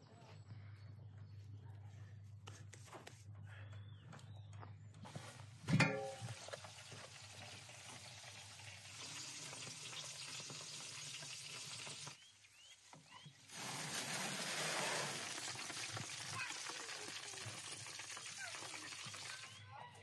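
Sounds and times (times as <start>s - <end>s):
meat sizzling: 6.2s - 12.2s, 13.5s - 19.5s.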